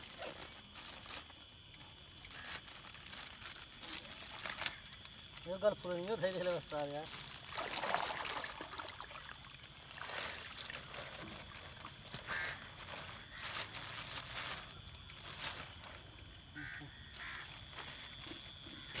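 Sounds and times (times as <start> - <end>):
light water splashing: 1.3 - 12.8.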